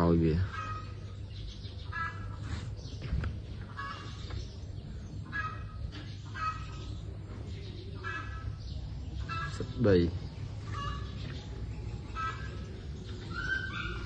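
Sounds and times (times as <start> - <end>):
fowl honking: 0.5 - 1.0, 1.9 - 2.4, 3.7 - 4.1, 5.3 - 6.9, 8.0 - 8.6, 10.7 - 11.1, 12.1 - 12.7.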